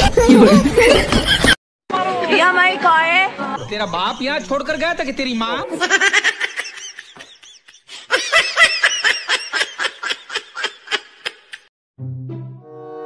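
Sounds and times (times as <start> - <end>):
high-pitched laughter: 0.0 - 1.6, 5.7 - 11.7.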